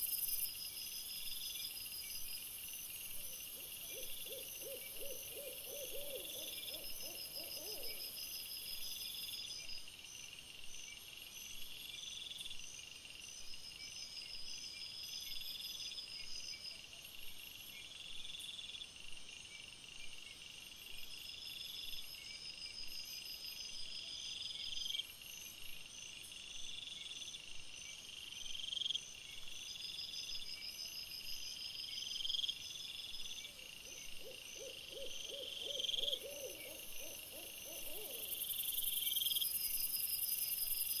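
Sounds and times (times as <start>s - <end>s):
insects pulsed trills: 29.9s - 41.0s.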